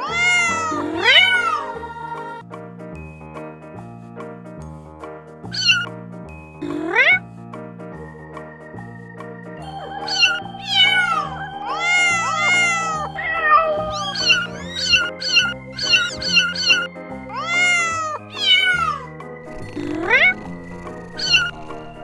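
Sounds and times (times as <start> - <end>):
kittens mewing: 0.0 - 1.7, 5.5 - 5.9, 6.6 - 7.2, 10.0 - 22.0
background music: 0.0 - 22.0.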